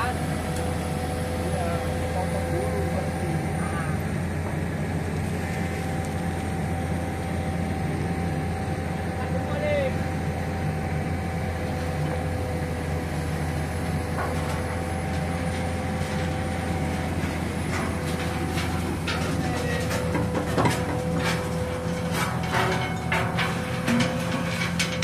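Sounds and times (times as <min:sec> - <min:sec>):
constant whine: 0:00.0 - 0:25.0
excavator diesel engine running: 0:00.0 - 0:25.0.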